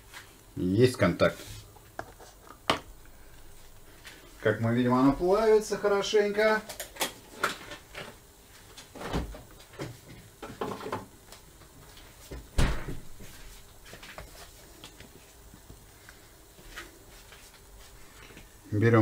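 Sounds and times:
heavy thump: 12.3 - 13.2.

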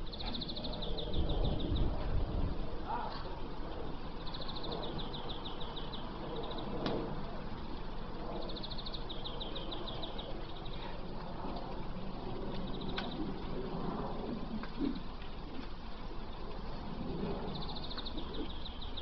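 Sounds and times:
low outdoor rumble: 0.0 - 19.0
songbird singing rapid high notes: 4.2 - 6.8, 17.4 - 19.0.

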